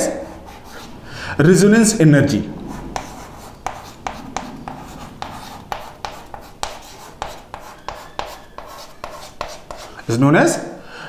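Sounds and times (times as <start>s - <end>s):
chalk tapping and scratching: 0.0s - 0.9s, 3.0s - 10.1s.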